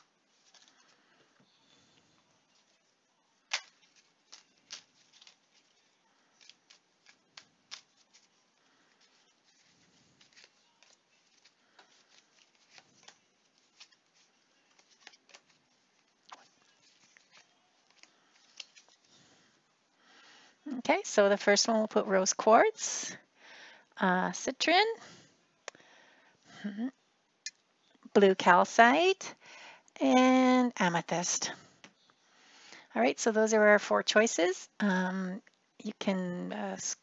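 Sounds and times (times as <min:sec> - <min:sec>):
cards shuffled and laid down: 0:03.5 - 0:19.1.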